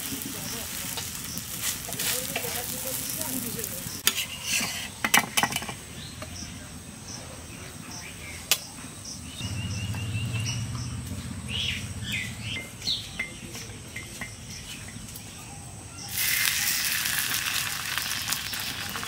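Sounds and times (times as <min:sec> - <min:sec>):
flatbread sizzling in hot fat: 0:00.0 - 0:04.9, 0:16.1 - 0:19.0
birds chirping: 0:00.0 - 0:19.0.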